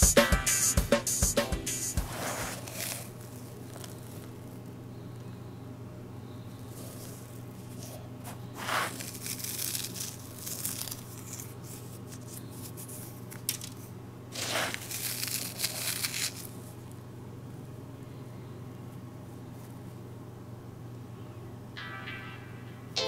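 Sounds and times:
fingers raking through charcoal granules: 1.9s - 5.3s, 6.5s - 16.9s.

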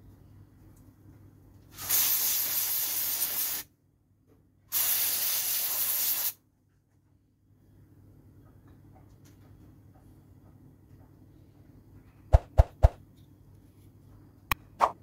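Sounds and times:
aerosol spray can hissing: 1.8s - 3.7s, 4.7s - 6.4s.

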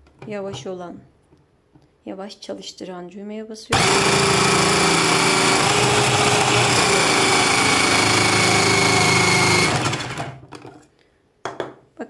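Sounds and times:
food processor motor whine: 3.7s - 10.5s
carrot being grated: 3.8s - 10.2s.

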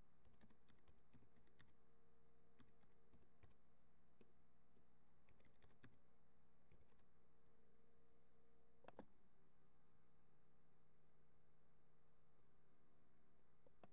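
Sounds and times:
low steady hum: 0.0s - 13.9s
typing on computer keyboard: 0.2s - 1.8s, 2.6s - 3.6s, 5.3s - 6.0s, 6.7s - 7.1s.

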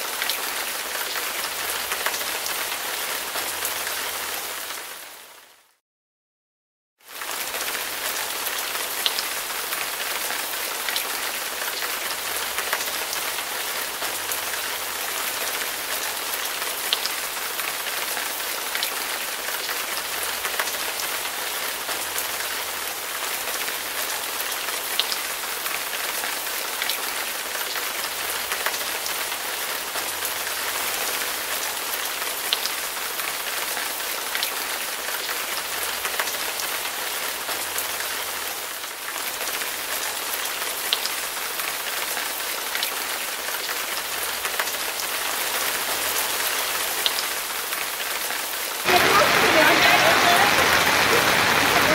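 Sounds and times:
heavy rain hissing: 48.7s - 51.9s.

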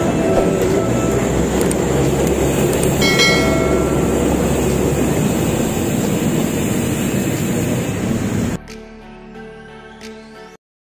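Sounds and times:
train rumbling past: 0.0s - 8.6s
brief high tone: 3.0s - 4.8s.

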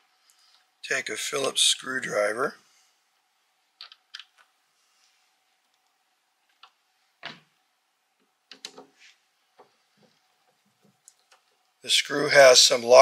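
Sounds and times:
clicks and knocks of plastic parts: 3.8s - 4.5s, 8.2s - 9.0s.

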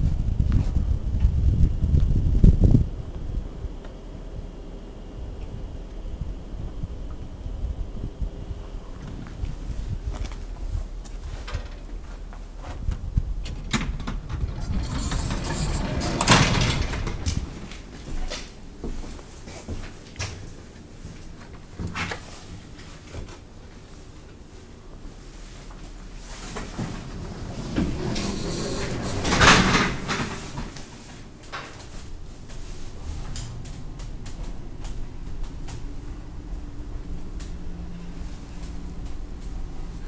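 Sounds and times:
low steady hum: 0.0s - 40.0s
elevator sliding rush: 13.2s - 18.4s, 26.2s - 40.0s
elevator mechanical clunks: 13.4s - 18.5s, 26.4s - 31.9s.

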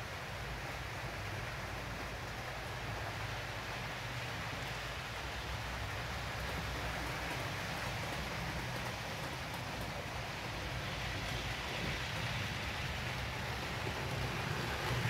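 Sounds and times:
model train rumbling hiss: 9.5s - 15.0s.

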